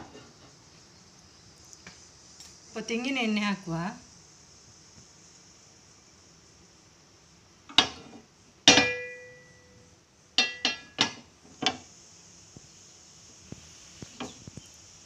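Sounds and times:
metal pan clinking on stove: 8.7 - 9.6, 10.4 - 11.2.

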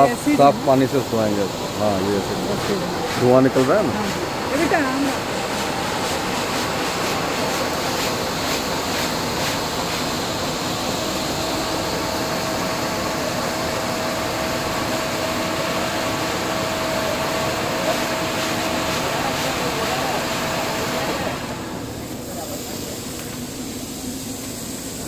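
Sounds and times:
running water hiss: 0.0 - 13.4
electric motors droning: 0.0 - 25.0
steady machine whine: 0.0 - 25.0.

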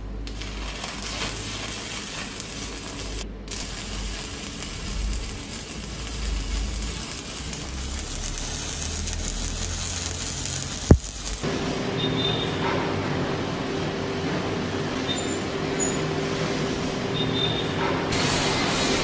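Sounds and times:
welding arc crackling: 0.0 - 11.5.

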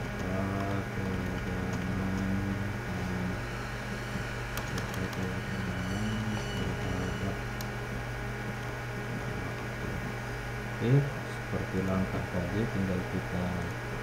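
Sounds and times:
faint shifting tones: 0.0 - 14.0
low background hum: 0.0 - 14.0
computer keyboard clicks: 0.2 - 2.3.

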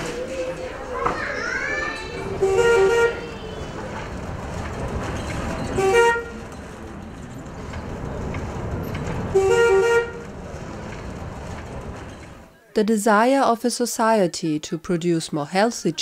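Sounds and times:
engine and traffic rumble: 0.0 - 12.6
vehicle horn honking: 2.4 - 3.3, 5.8 - 6.4, 9.3 - 10.3.

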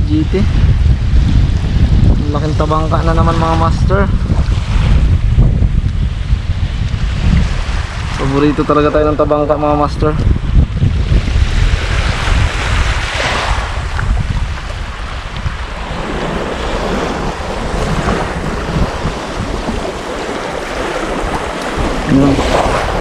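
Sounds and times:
small waves washing on shore: 0.0 - 23.0
wind buffeting microphone: 0.0 - 23.0.

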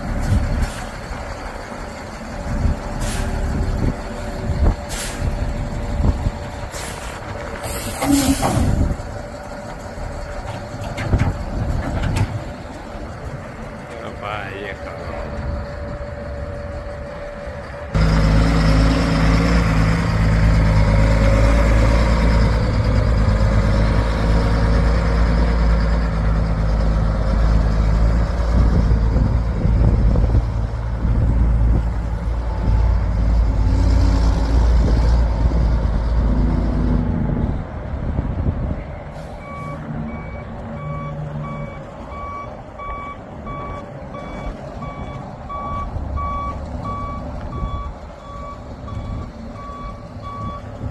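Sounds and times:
truck diesel engine running: 0.0 - 50.9
reversing alarm beeps: 39.4 - 50.7.

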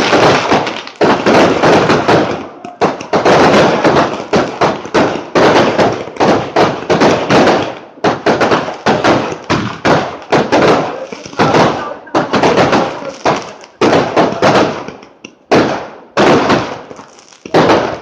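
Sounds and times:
fireworks bangs and crackling: 0.0 - 18.0.

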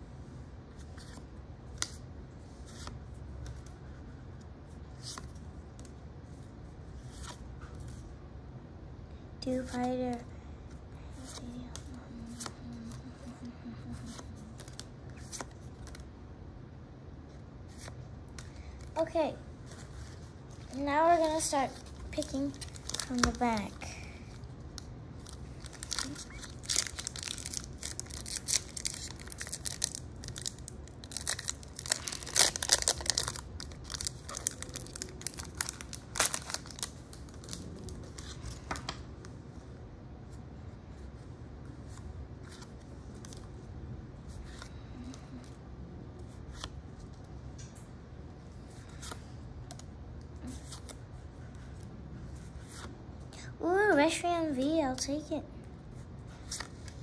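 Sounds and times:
cards being handled: 19.6 - 23.8
foil wrapper crinkling and tearing: 22.5 - 23.6, 25.2 - 38.7.

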